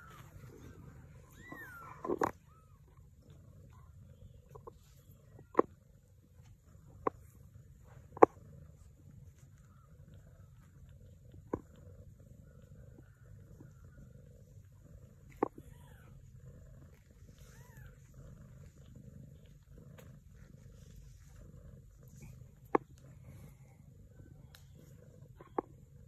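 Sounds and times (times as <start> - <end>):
cat purring: 0.0 - 26.0
kitten squeaks: 1.2 - 2.9.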